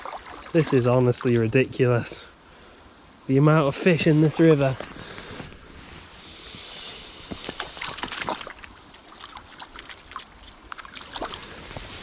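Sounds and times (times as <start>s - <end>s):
fish splashing in water: 0.0s - 0.7s, 7.4s - 11.8s
water washing: 0.0s - 2.2s, 3.6s - 6.0s.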